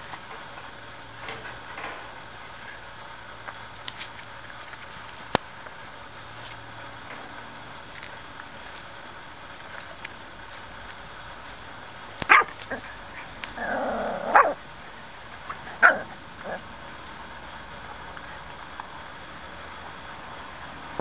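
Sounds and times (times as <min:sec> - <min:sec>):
puppies yapping: 0:12.3 - 0:14.6, 0:15.4 - 0:16.6.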